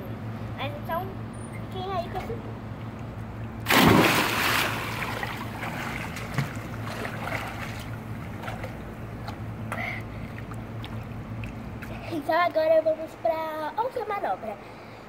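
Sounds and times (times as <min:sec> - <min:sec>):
steady low hum: 0:00.0 - 0:15.0
loud splash into pool: 0:03.6 - 0:07.8
water sloshing and churning: 0:03.6 - 0:09.6.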